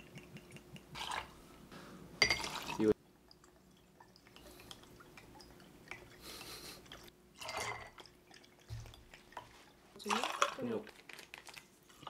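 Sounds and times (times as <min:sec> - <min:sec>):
liquid splashing into a glass: 0:02.2 - 0:02.9.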